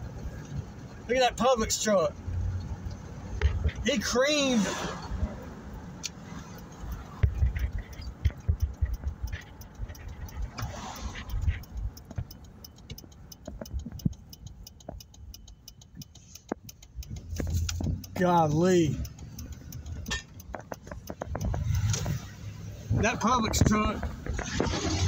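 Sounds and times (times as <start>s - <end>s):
road rumble inside vehicle: 0.0s - 25.0s
small clicks and ticks: 5.5s - 25.0s
irregular thumps: 6.9s - 18.3s, 19.0s - 22.3s, 22.9s - 25.0s.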